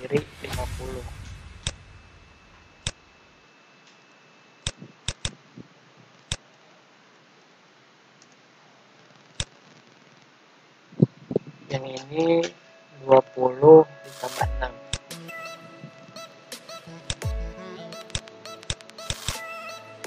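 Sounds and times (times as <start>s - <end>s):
faint steady hiss: 0.0s - 20.0s
computer mouse clicking: 4.6s - 5.4s.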